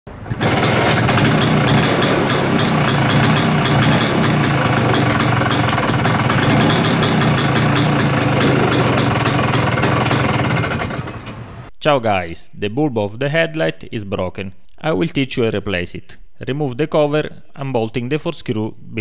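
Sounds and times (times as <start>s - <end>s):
scooter engine idling: 0.2s - 11.6s.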